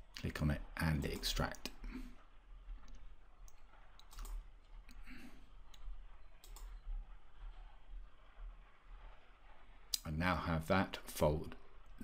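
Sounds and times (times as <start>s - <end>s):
faint low hum: 0.0s - 12.0s
computer mouse clicking: 1.0s - 1.7s, 2.7s - 5.0s, 5.6s - 10.1s.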